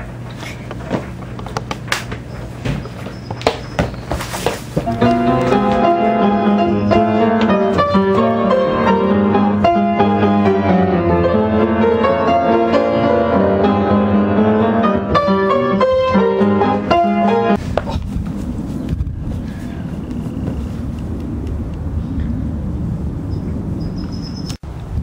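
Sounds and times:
upright piano playing: 4.8s - 17.6s.

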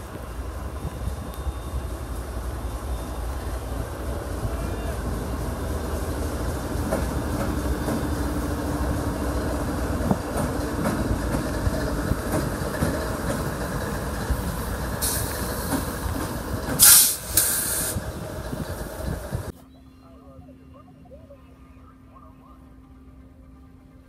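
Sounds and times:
diesel locomotive engine rumble: 0.0s - 19.6s, 20.2s - 24.0s
wheels clicking over track: 6.4s - 19.5s
loud hiss bursts: 15.0s - 16.0s, 16.8s - 18.1s.

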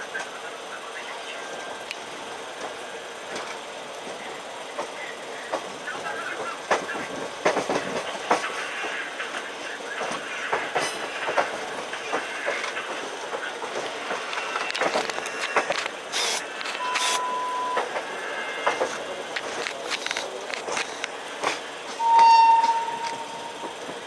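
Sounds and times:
train wheels clattering over rails: 2.0s - 17.1s, 17.7s - 24.0s
steady high tone: 16.3s - 18.5s.

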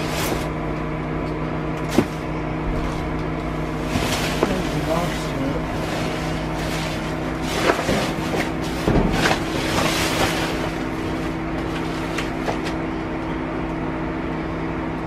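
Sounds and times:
vehicle engine idling: 0.0s - 15.0s
items being moved and handled: 1.8s - 12.9s.

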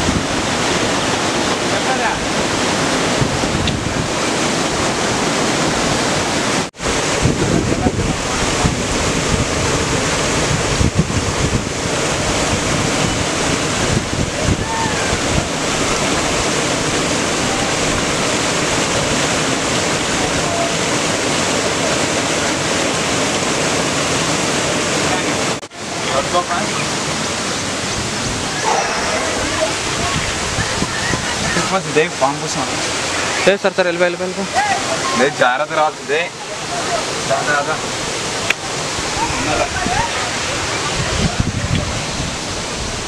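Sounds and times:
waterfall rushing: 0.0s - 43.0s
wind buffeting microphone: 2.1s - 18.3s, 27.7s - 32.2s, 38.8s - 43.0s.

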